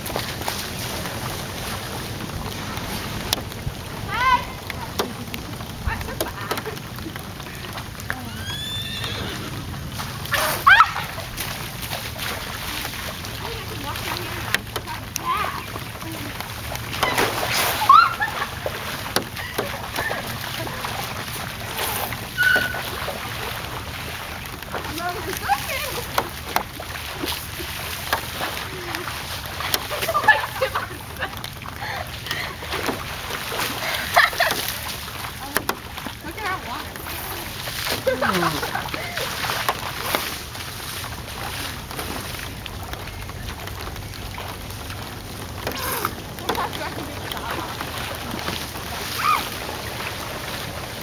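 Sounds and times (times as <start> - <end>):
feet splashing in puddle: 0.0 - 51.0
girls shouting and squealing: 4.1 - 4.8, 8.2 - 9.6, 10.3 - 11.4, 16.9 - 18.7, 22.3 - 22.9, 49.0 - 49.7.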